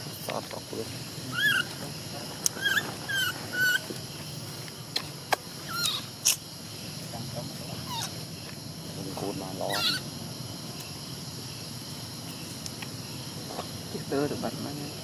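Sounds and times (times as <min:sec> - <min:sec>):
baby monkey squeaky whimpers: 0:01.3 - 0:01.8, 0:02.5 - 0:03.9, 0:05.7 - 0:06.4, 0:07.8 - 0:08.2, 0:09.7 - 0:10.0.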